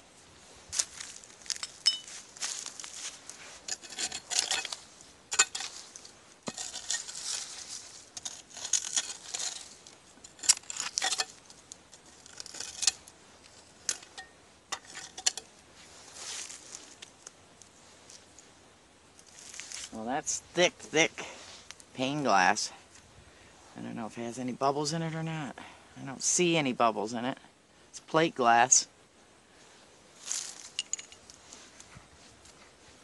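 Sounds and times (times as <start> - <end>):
tool scraping through dirt: 0.7 - 17.3, 19.2 - 20.0
glass and metal clinking: 1.6 - 2.2, 3.7 - 5.8, 10.4 - 11.4, 13.9 - 15.5, 30.6 - 31.3.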